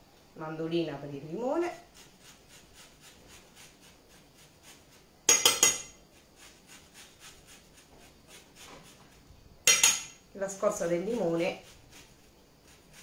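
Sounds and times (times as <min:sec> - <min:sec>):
lemon scraping on grater: 0:01.7 - 0:05.1, 0:06.1 - 0:09.3, 0:10.8 - 0:13.0
metal clinking on crockery: 0:05.3 - 0:06.0, 0:09.7 - 0:10.2.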